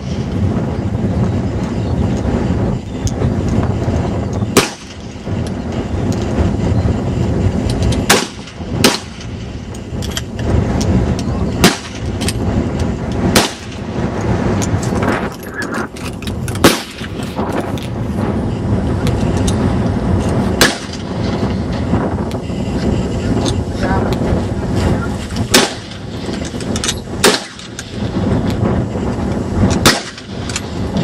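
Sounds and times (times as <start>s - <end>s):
steady low rumble: 0.0s - 31.0s
loud rifle shots: 4.5s - 5.1s, 8.1s - 9.4s, 11.6s - 12.3s, 13.3s - 13.9s, 16.6s - 17.2s, 20.6s - 21.2s, 25.5s - 26.6s, 27.2s - 28.2s, 29.8s - 30.8s
distant rifle shots: 13.3s - 13.8s, 25.5s - 26.0s, 27.2s - 27.9s, 29.8s - 30.3s.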